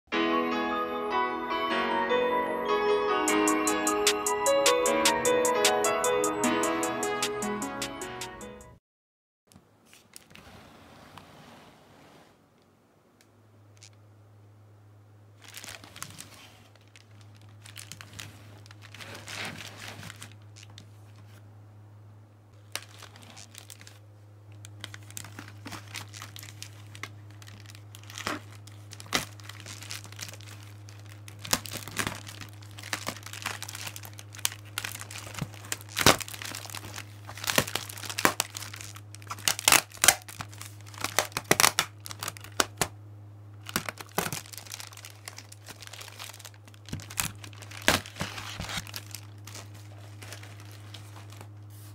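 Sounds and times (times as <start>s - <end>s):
plastic bag crinkling: 15.4s - 21.4s, 22.6s - 42.9s, 43.6s - 51.9s.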